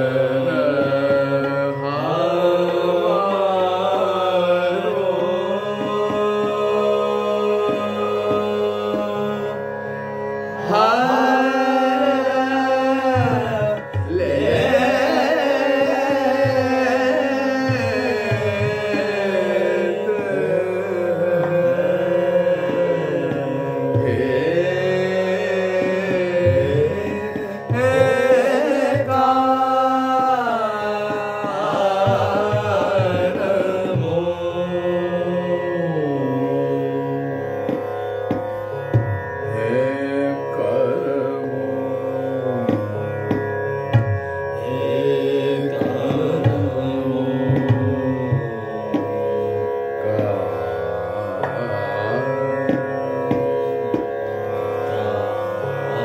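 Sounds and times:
man singing classical vocals: 0:00.0 - 0:44.0, 0:44.6 - 0:56.0
tabla strokes: 0:10.7 - 0:34.3, 0:37.7 - 0:39.2, 0:42.6 - 0:48.1, 0:51.4 - 0:54.1.

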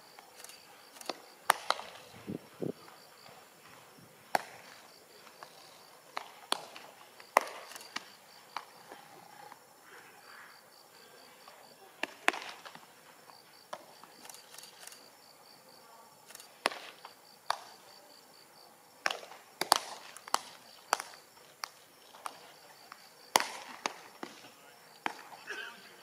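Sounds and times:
insect chirping: 0:00.0 - 0:26.0
baseballs smacking into gloves: 0:01.1 - 0:02.0, 0:03.6 - 0:09.0, 0:12.0 - 0:12.8, 0:16.6 - 0:17.8, 0:19.0 - 0:25.6.

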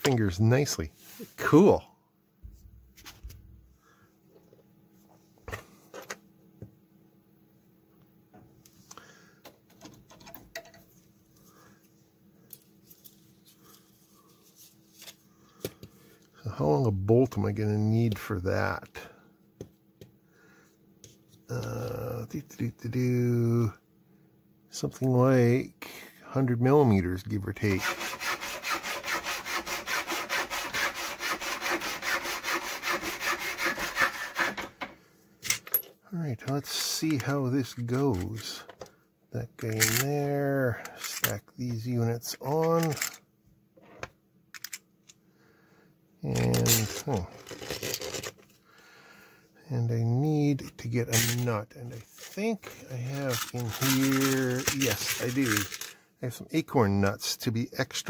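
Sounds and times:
small metal parts clicking: 0:39.6 - 0:40.1, 0:42.7 - 0:43.2, 0:44.5 - 0:44.8, 0:53.2 - 0:56.0.

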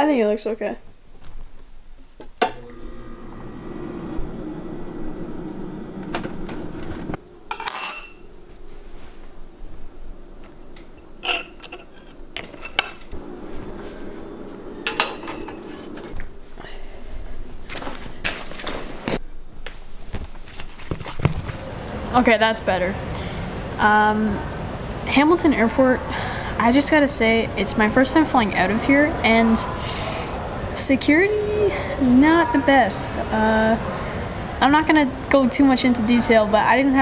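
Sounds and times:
steady low hum: 0:02.6 - 0:20.3
spoon clinking in ceramic bowl: 0:07.5 - 0:08.2.

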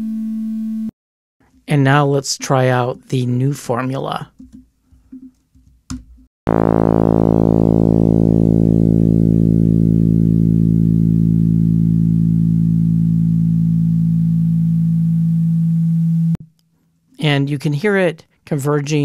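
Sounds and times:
synthesized tone: 0:06.5 - 0:16.4.

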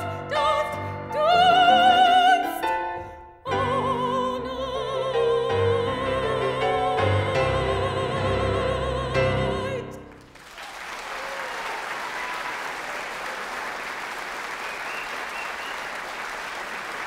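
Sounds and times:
piano: 0:00.0 - 0:10.4
audience applause: 0:10.1 - 0:17.0.

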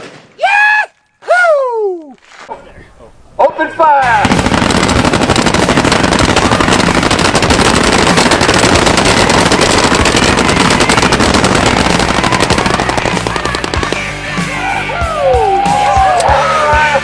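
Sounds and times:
rapid machine gun fire: 0:04.0 - 0:14.5.

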